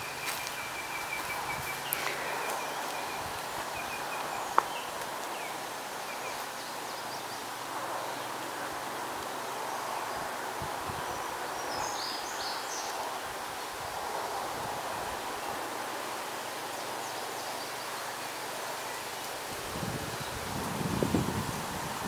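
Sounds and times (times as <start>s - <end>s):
steady woodland hiss: 0.0s - 22.0s.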